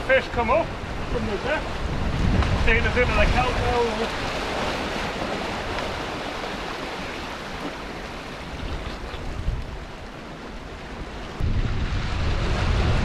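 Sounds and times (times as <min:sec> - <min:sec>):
surf washing over rocks: 0:00.0 - 0:13.0.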